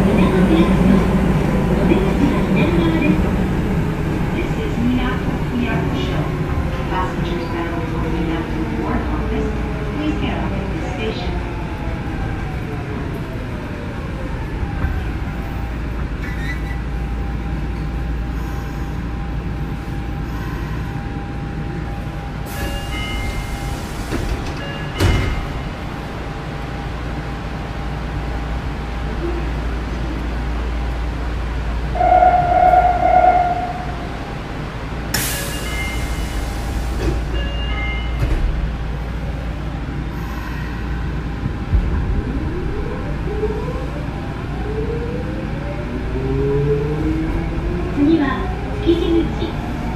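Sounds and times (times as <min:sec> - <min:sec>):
short high tones: 0:32.0 - 0:34.2.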